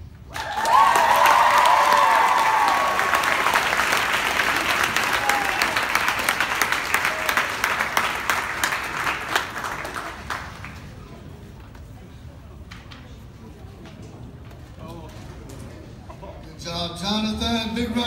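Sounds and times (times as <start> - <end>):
audience applauding: 0.3 - 11.0.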